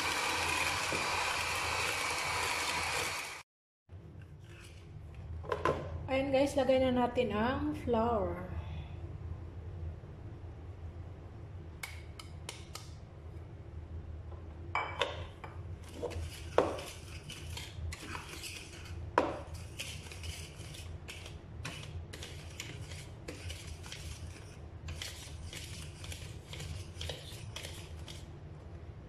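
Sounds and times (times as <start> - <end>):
kitchenware clinks and taps: 14.8 - 15.6.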